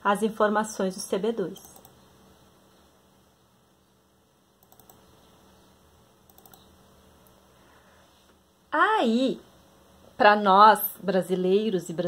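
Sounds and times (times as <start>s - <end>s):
faint computer clicking: 1.6s - 2.1s, 4.6s - 7.4s.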